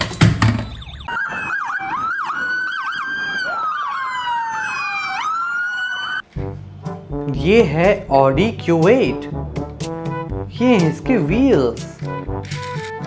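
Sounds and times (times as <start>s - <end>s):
electronic police siren: 0.4s - 6.3s.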